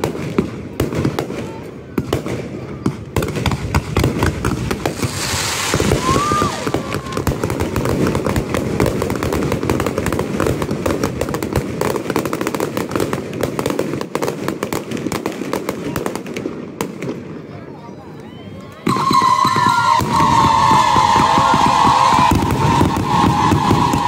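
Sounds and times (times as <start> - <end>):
fireworks bursting and crackling: 0.0 - 17.5, 18.8 - 24.0
firework whistle: 4.8 - 7.6, 18.4 - 24.0.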